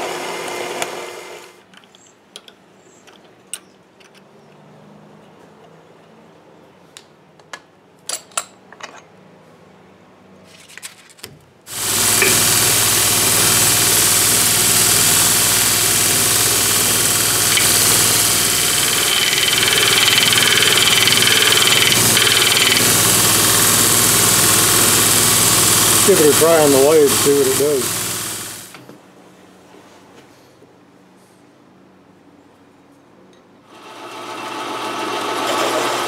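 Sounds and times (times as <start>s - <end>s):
belt grinder motor running: 11.7s - 28.7s, 33.8s - 36.0s
blade grinding on belt: 11.7s - 28.7s.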